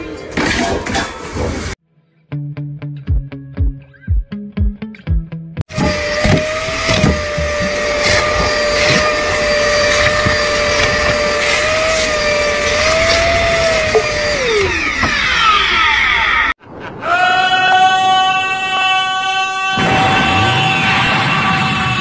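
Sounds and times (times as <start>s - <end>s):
vacuum cleaner whining: 5.7s - 16.6s.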